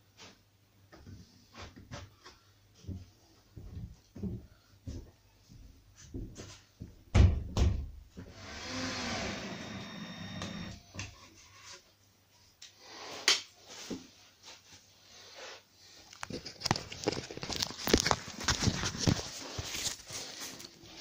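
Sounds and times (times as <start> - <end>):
cordless drill running: 8.3 - 10.8.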